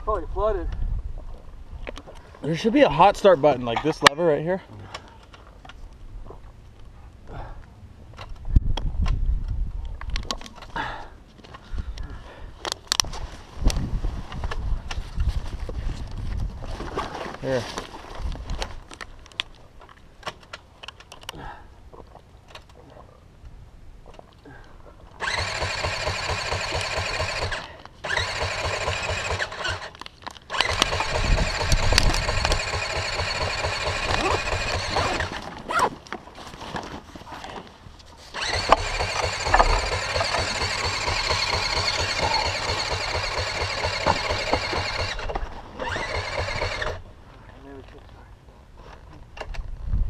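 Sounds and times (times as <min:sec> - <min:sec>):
motorcycle electric starter cranking: 0:25.2 - 0:35.4, 0:38.3 - 0:47.0.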